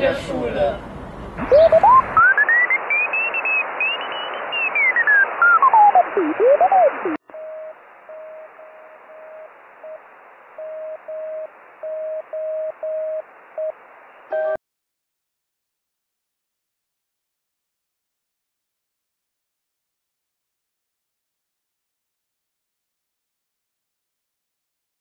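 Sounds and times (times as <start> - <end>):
radio hiss: 0.0 - 14.6
morse code tone: 1.4 - 10.0, 10.6 - 13.2, 14.3 - 14.6.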